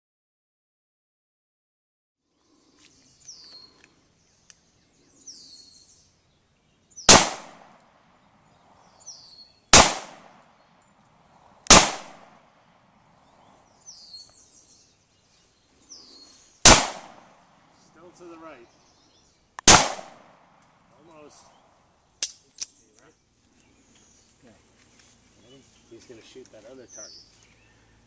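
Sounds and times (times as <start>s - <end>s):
pistol shots: 7.1s - 7.9s, 9.7s - 10.5s, 11.7s - 12.5s, 16.6s - 17.4s, 19.6s - 20.6s.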